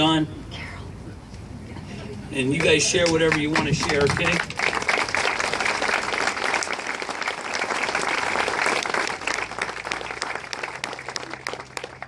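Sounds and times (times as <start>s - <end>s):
crowd applauding: 2.5s - 12.0s.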